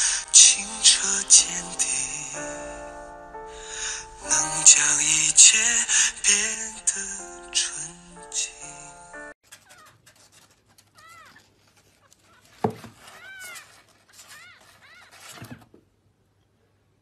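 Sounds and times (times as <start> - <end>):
faint scratching on cardboard: 9.4 - 15.8.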